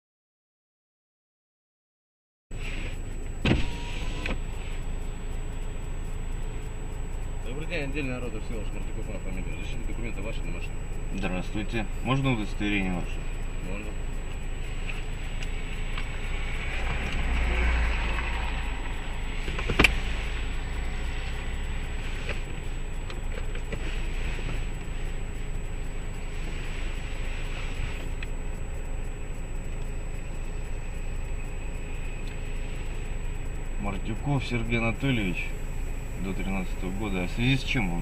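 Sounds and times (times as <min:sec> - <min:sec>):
car cabin rumble: 0:02.6 - 0:38.0
sharp click: 0:02.8 - 0:04.8, 0:18.2 - 0:20.2.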